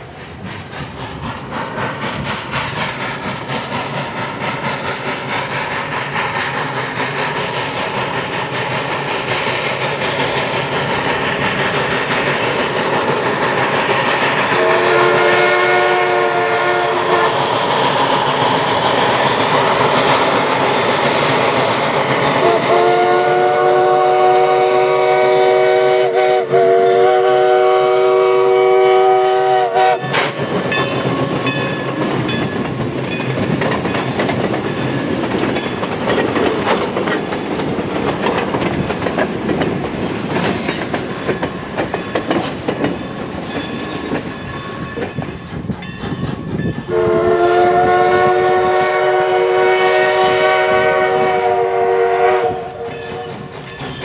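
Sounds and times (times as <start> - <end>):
steam whistle blast: 14.5 - 17.5, 22.4 - 30.4, 46.9 - 53.4
wheels clicking over rail joints: 30.0 - 46.9, 52.7 - 54.0.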